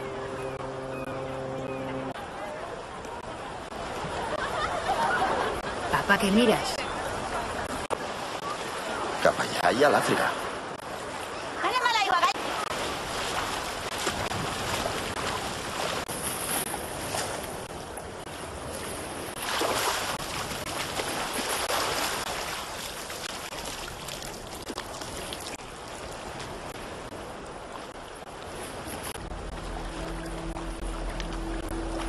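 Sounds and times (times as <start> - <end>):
low steady tone: 0.0 - 2.4, 29.2 - 32.0
swimmer splashing: 0.0 - 32.0
waves washing around rocks: 2.2 - 32.0.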